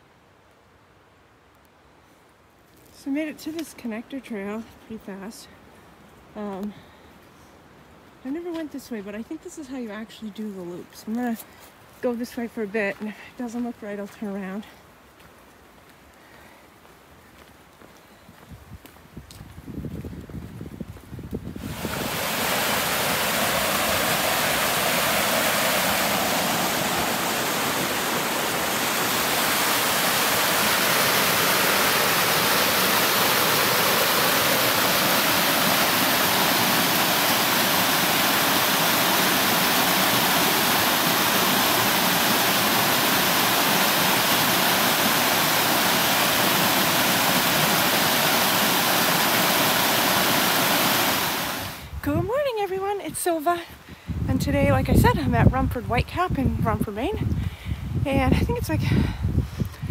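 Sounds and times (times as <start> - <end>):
waterfall rushing: 21.6 - 51.9.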